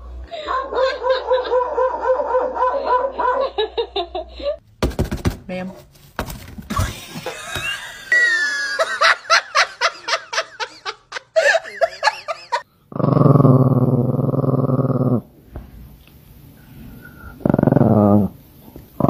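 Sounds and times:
low animal growl: 0:12.9 - 0:15.3, 0:17.0 - 0:18.4.

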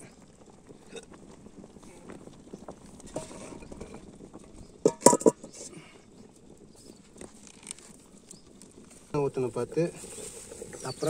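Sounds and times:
metal cooking pots clanking: 0:03.1 - 0:04.0, 0:04.7 - 0:05.7.

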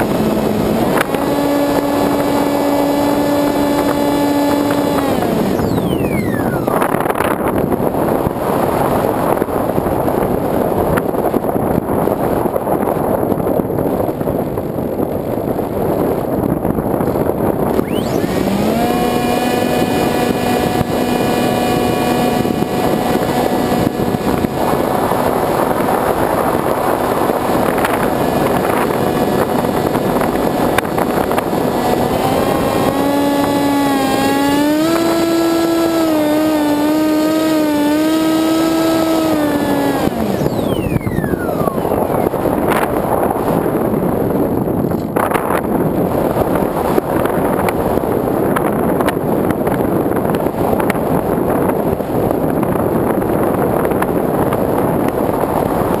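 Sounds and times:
electric motor and propeller whine: 0:00.0 - 0:11.9, 0:15.7 - 0:45.6.

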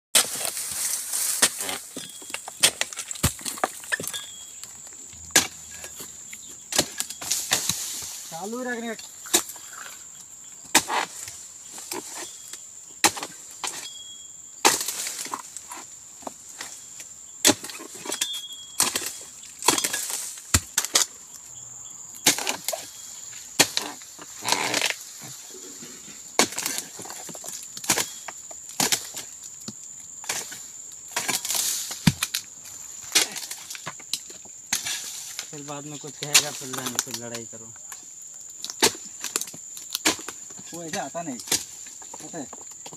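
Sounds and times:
frond rustle: 0:00.2 - 0:02.2, 0:02.8 - 0:10.1
chisel chopping wood: 0:05.2 - 0:05.8, 0:32.0 - 0:32.4.

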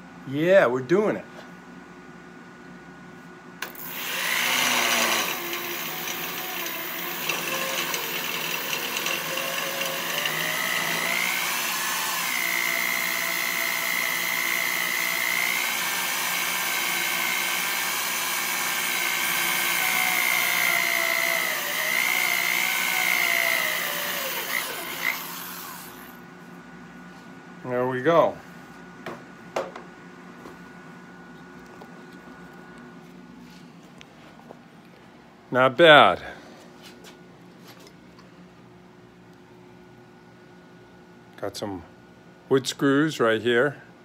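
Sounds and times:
electric drill boring metal: 0:03.6 - 0:26.2
drill bit squeal: 0:19.6 - 0:26.0.

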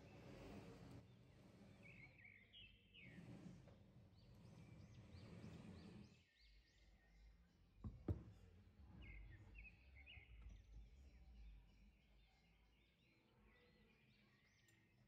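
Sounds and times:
wooden board scraping on table: 0:00.0 - 0:06.2
faint bird chirps: 0:09.0 - 0:15.0.

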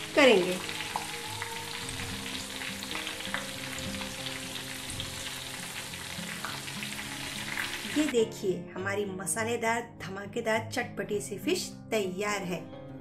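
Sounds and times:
fish deep-frying in oil: 0:00.0 - 0:08.1
oil crackles and pops: 0:00.4 - 0:08.1.

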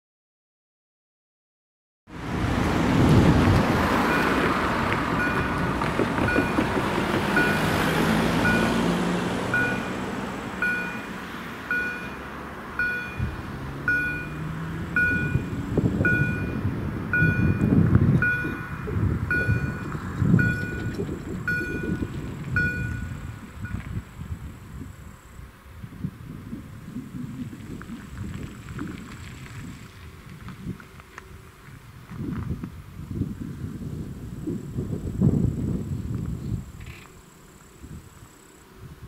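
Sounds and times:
car driving over crossing: 0:02.1 - 0:33.2
vehicle rumble: 0:02.1 - 0:39.0
crossing warning signal tones: 0:04.0 - 0:24.1.

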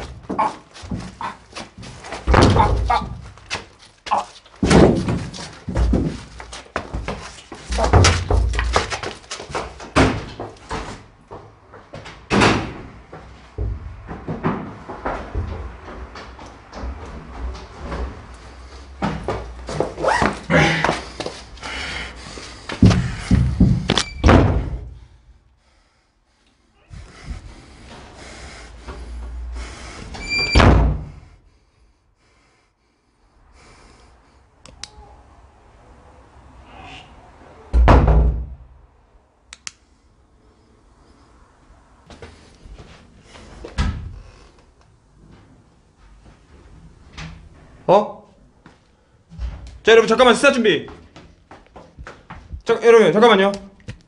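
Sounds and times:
knocks and thumps: 0:00.0 - 0:03.7, 0:04.6 - 0:18.3, 0:22.8 - 0:25.0
door banging: 0:02.2 - 0:03.4, 0:04.6 - 0:06.3, 0:07.7 - 0:10.5, 0:22.8 - 0:24.9, 0:30.1 - 0:31.2, 0:37.7 - 0:38.6
door squeaking: 0:23.9 - 0:24.6, 0:30.1 - 0:30.9.

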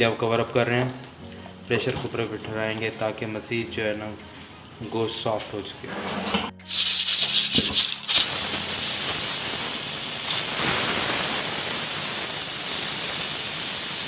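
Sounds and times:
pressure cooker steam hissing: 0:06.6 - 0:14.0.

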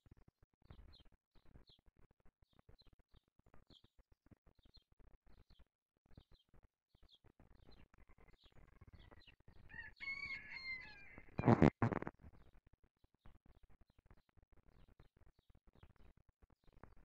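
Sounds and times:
songbirds chirping: 0:00.6 - 0:12.5
rooster crowing: 0:09.7 - 0:11.5
microphone handling noise: 0:11.4 - 0:12.1.

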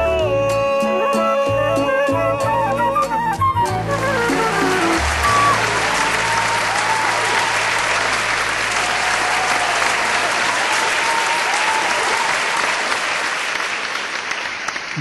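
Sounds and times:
audience applauding: 0:03.6 - 0:15.0.

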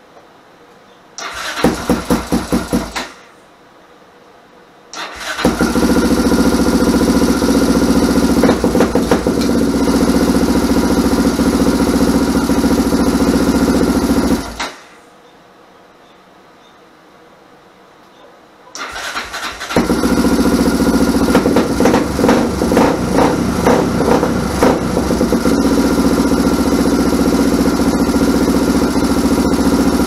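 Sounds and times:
atv engine starting and idling: 0:01.2 - 0:03.1, 0:05.0 - 0:14.8, 0:18.8 - 0:30.0.

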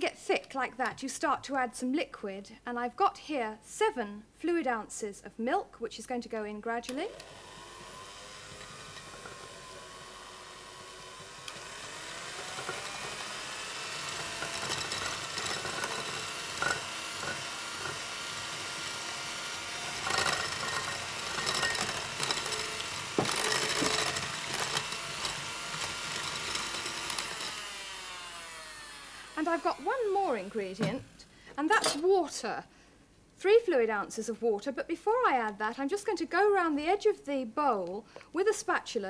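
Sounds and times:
electric hand whisk running: 0:07.0 - 0:30.8.

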